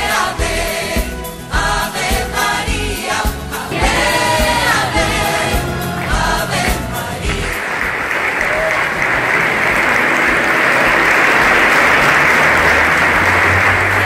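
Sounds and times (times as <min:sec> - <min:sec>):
choir singing: 0:00.0 - 0:07.9
crowd applauding: 0:03.7 - 0:14.0.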